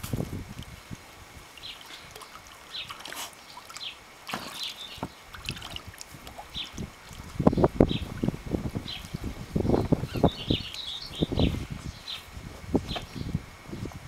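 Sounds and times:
water sloshing and splashing: 0:00.0 - 0:10.9
birds chirping: 0:01.5 - 0:05.7, 0:06.3 - 0:13.9.

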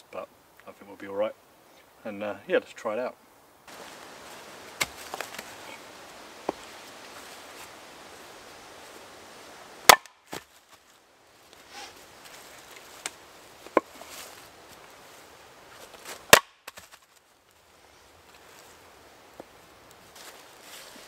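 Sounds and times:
axe splitting log: 0:09.8 - 0:10.5, 0:13.7 - 0:14.0, 0:16.1 - 0:16.9.

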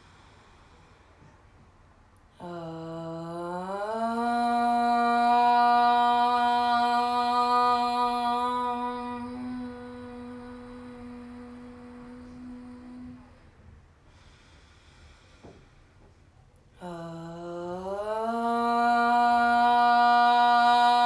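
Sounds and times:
woman chanting om: 0:02.3 - 0:13.7, 0:16.7 - 0:21.0.

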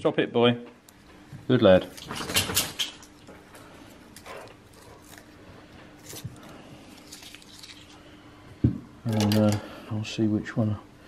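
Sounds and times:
faint steady hum: 0:00.0 - 0:11.0
paper wrappers crinkling: 0:04.1 - 0:08.0.

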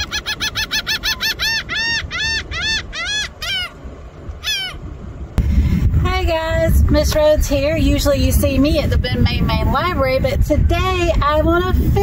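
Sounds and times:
gull calling: 0:00.0 - 0:04.9
loud low rumble: 0:01.5 - 0:12.0.

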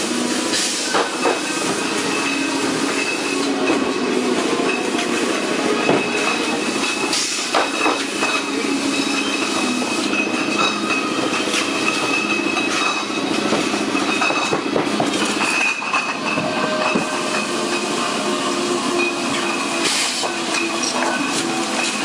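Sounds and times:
glass bottles rattling and clinking: 0:04.6 - 0:18.0, 0:18.9 - 0:22.0.

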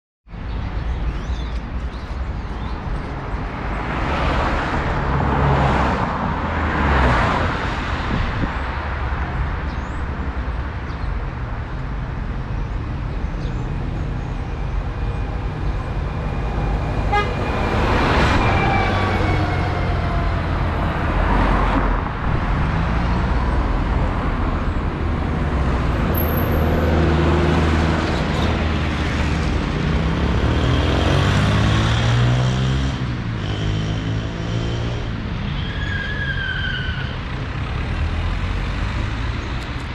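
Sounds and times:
vehicles driving past: 0:00.4 - 0:39.9
bus passing: 0:11.4 - 0:39.9.

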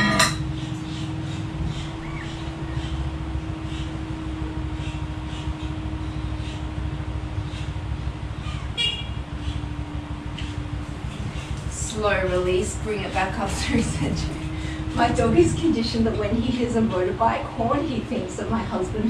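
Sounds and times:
faint hum: 0:00.0 - 0:19.0
steady low rumble: 0:00.0 - 0:19.0
motorbike horn toot: 0:08.8 - 0:09.3.

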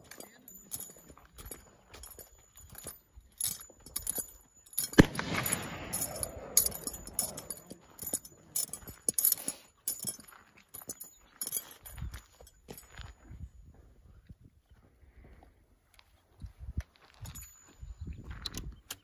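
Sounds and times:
spurs jingling: 0:00.0 - 0:13.7, 0:17.0 - 0:19.0
gunshot echoing: 0:05.0 - 0:07.8
footsteps on gravel: 0:05.0 - 0:13.3.

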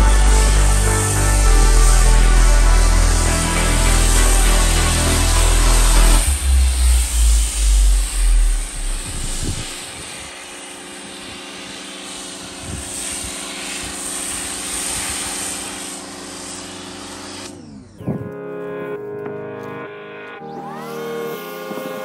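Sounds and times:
water spray hissing: 0:00.0 - 0:17.4
pressure washer motor hum: 0:00.0 - 0:17.9.

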